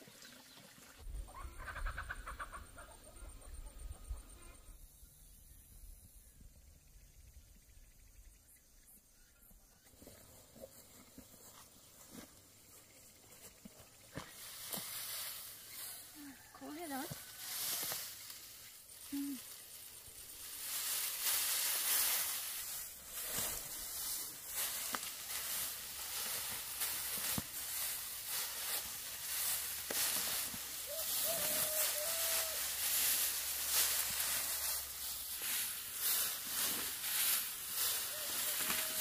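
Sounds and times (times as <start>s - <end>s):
dry straw rustling: 13.4s - 39.0s.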